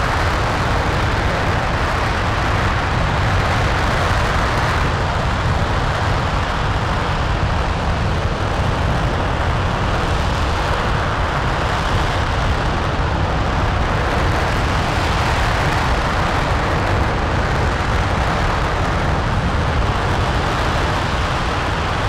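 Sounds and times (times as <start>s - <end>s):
rocket engine roaring: 0.0s - 22.0s.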